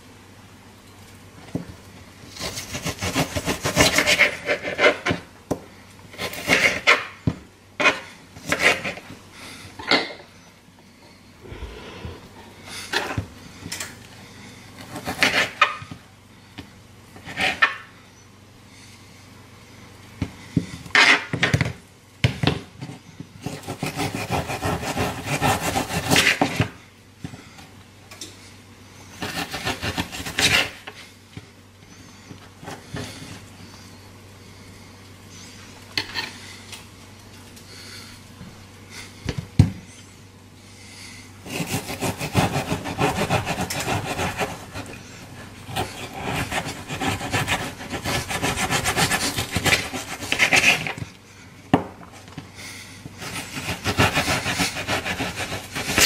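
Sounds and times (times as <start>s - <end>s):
knife scraping cutting board: 2.3s - 5.2s, 41.4s - 45.0s, 45.7s - 51.0s, 53.2s - 56.0s
knife sawing through meat: 2.4s - 5.0s, 23.4s - 26.5s, 29.2s - 30.8s, 41.4s - 45.0s, 45.7s - 50.9s, 53.2s - 56.0s.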